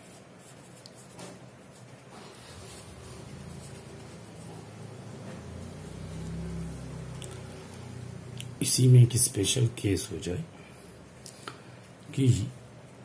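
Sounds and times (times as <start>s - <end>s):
pen scratching on paper: 0.0s - 5.0s.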